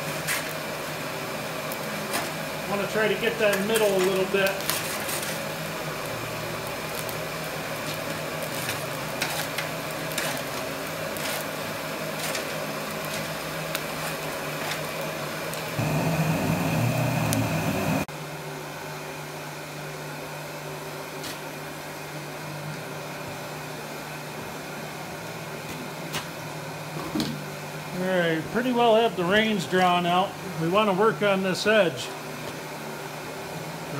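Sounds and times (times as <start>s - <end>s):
forge blower running: 0.0s - 18.1s.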